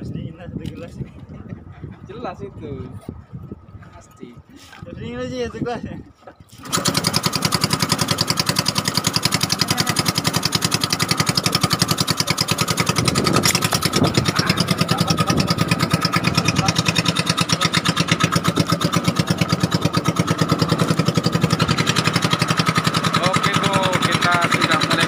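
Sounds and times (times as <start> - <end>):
small boat engine chugging: 6.6 - 25.0.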